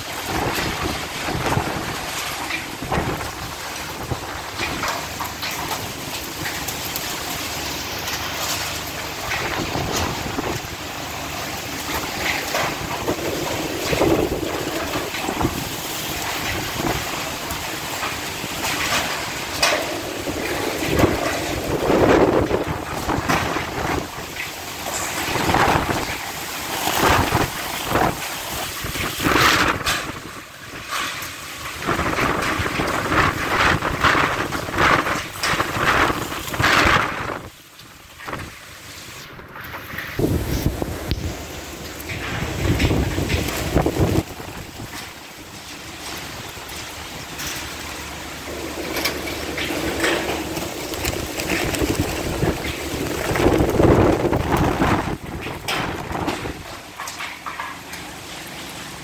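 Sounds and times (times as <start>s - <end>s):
wind buffeting microphone: 0.0s - 6.6s, 9.2s - 10.8s, 11.8s - 24.5s, 25.1s - 31.1s, 31.8s - 37.6s, 39.2s - 45.2s, 48.4s - 56.8s
heavy rain: 0.0s - 59.0s
strong wind gusting: 20.0s - 24.4s, 39.4s - 45.0s, 48.5s - 56.7s.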